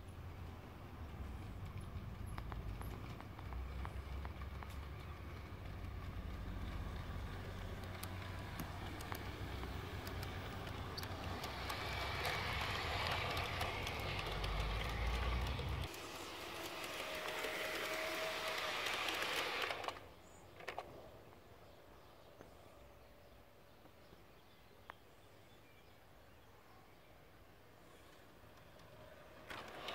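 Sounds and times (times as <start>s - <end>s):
model train wheels rolling on rails: 0.3s - 20.8s, 27.9s - 29.9s
track clicks: 2.3s - 20.8s.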